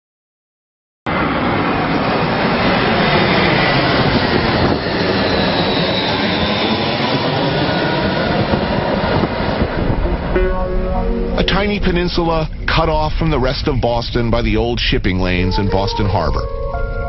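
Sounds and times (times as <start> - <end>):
loud engine roar: 1.1 - 12.8
faint falling whine: 9.8 - 15.6.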